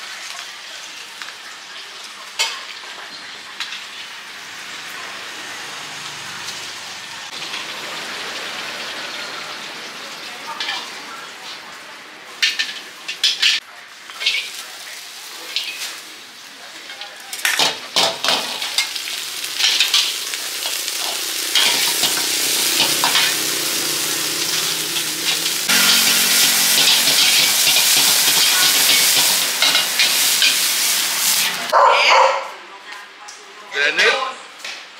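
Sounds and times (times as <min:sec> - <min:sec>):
hot oil sizzling: 0:00.0 - 0:31.8
metal spatula scraping wok: 0:18.3 - 0:31.7.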